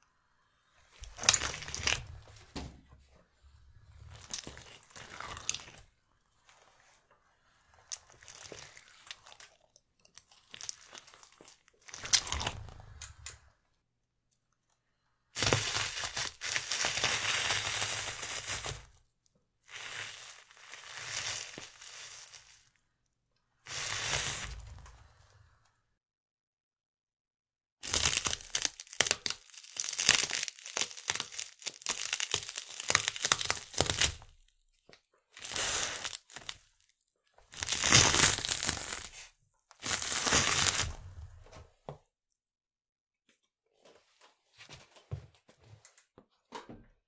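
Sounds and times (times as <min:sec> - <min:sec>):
wafer biscuits crunching: 0:01.0 - 0:02.5, 0:03.8 - 0:05.9, 0:07.6 - 0:13.3, 0:15.4 - 0:19.0, 0:19.7 - 0:22.7, 0:27.8 - 0:34.4, 0:35.3 - 0:36.8, 0:37.5 - 0:41.4
tyre squashing slime: 0:01.0 - 0:02.7.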